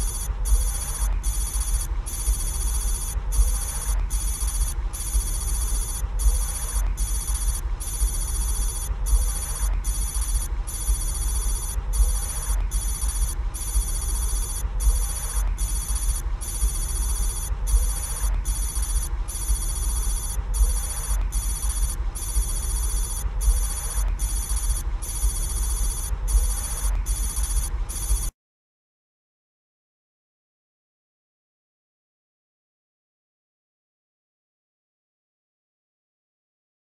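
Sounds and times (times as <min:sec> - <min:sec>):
high electronic ringing tone: 0:00.0 - 0:28.3
low hum: 0:00.0 - 0:28.3.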